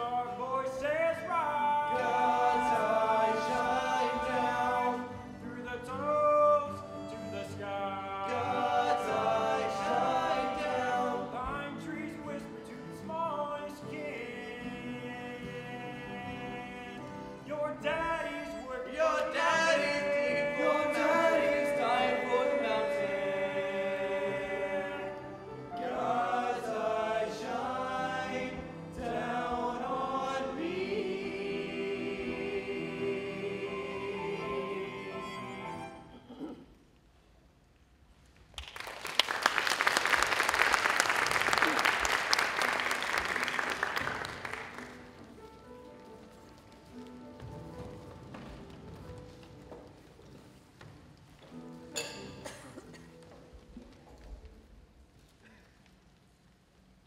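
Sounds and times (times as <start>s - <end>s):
male voices singing in harmony: 0.0s - 36.0s
audience applauding: 38.6s - 45.3s.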